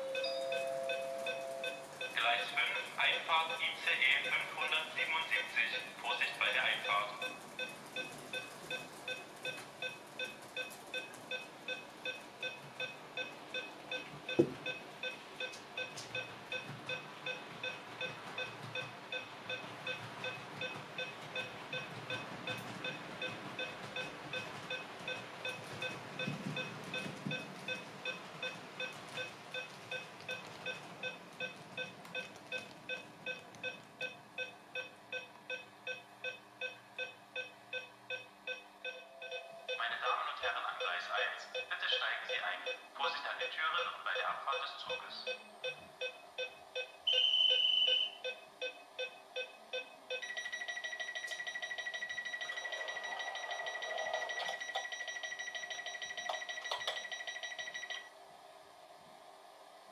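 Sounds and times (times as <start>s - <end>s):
electronic beeping: 47.1s - 58.1s.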